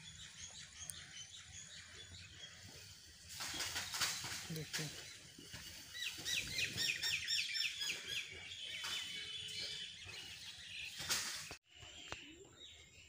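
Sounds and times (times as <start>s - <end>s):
bird chirping: 0.0s - 13.0s.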